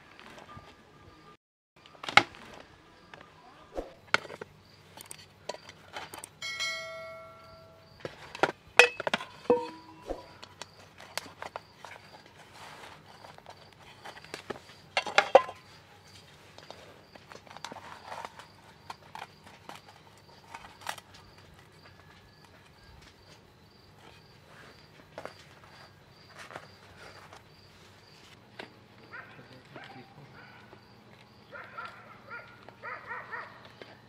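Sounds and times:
pan ringing: 6.4 - 8.0, 8.8 - 10.4
metal baking pans clinking: 6.4 - 10.5, 15.0 - 15.7.

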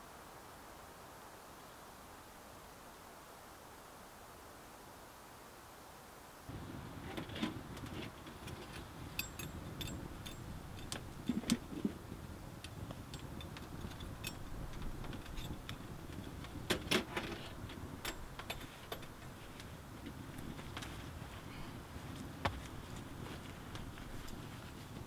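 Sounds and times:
wood fire crackling and popping: 7.4 - 21.4.

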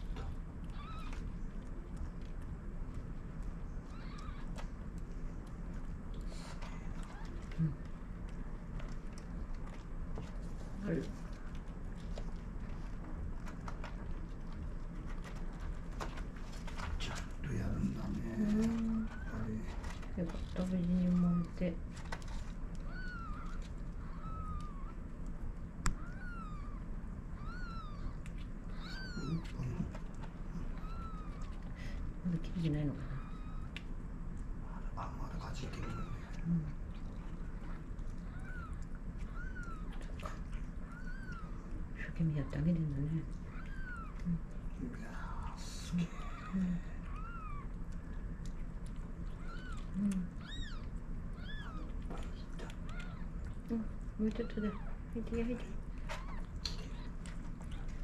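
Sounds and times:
kittens mewing: 0.7 - 1.3, 3.8 - 4.6, 22.8 - 25.1, 25.9 - 31.8, 35.6 - 36.8, 37.4 - 41.6, 43.4 - 44.6, 45.3 - 47.9, 49.3 - 55.1, 56.0 - 58.0.

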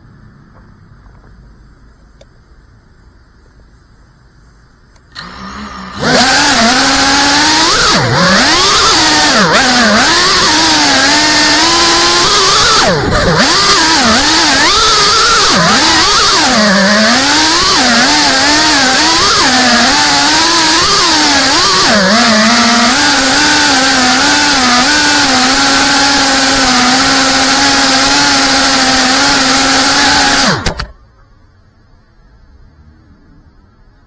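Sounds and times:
quadcopter motors whining: 5.0 - 31.0.

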